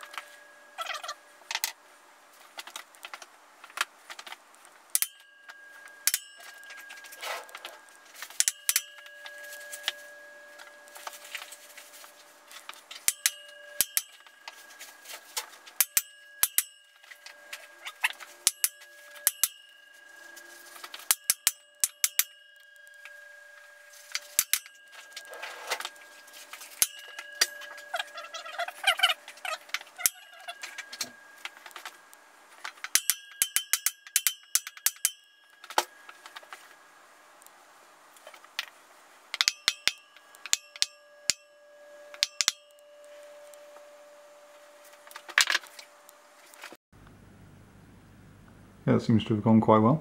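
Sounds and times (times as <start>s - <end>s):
metallic taps on steel: 4.9s - 10.0s, 12.5s - 23.2s, 32.6s - 36.6s, 39.4s - 41.5s, 42.1s - 42.8s.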